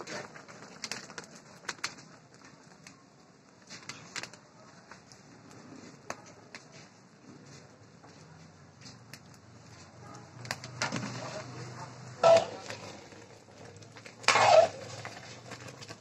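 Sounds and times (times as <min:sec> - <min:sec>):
wood fire crackling: 0:00.0 - 0:16.0
sharp pops and clicks: 0:00.3 - 0:03.0, 0:10.4 - 0:11.0.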